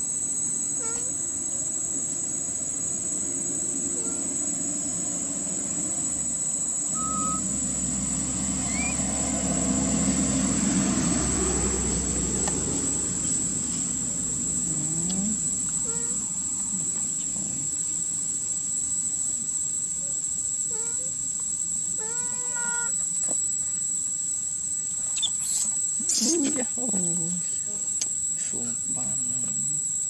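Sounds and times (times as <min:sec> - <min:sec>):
faint insect chirps: 0:00.0 - 0:30.0
high-pitched insect drone: 0:00.0 - 0:30.0
vehicle engine rumbling past: 0:07.4 - 0:14.8.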